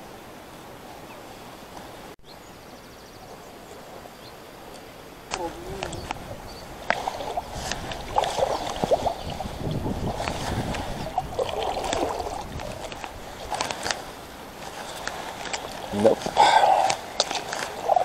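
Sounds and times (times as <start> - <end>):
kayak paddle strokes in water: 4.0 - 18.0
water splashing and dripping: 4.7 - 18.0.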